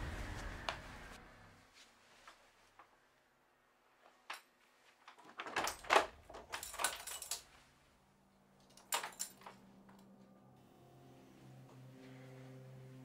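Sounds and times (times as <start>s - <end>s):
low steady hum: 0.0s - 1.8s, 6.2s - 13.0s
clattering handling noise: 4.2s - 7.7s, 8.6s - 9.9s.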